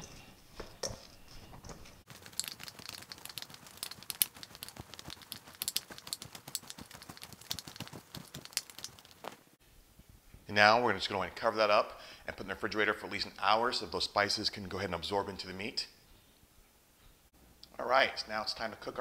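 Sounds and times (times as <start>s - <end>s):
hands kneading raw meat: 2.0s - 9.4s.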